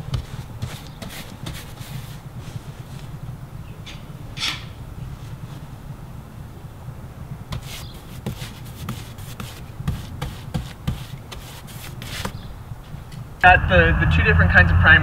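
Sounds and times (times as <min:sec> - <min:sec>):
hand scraping rough siding: 0:00.0 - 0:03.2, 0:07.5 - 0:12.6
low steady rumble: 0:02.0 - 0:07.6, 0:12.5 - 0:15.0.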